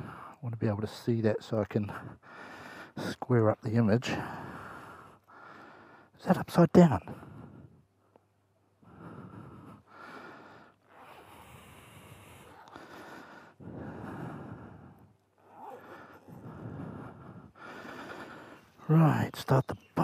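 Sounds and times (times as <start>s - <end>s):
person breathing: 0.0s - 0.4s, 1.9s - 3.0s, 4.1s - 6.2s, 7.0s - 18.9s.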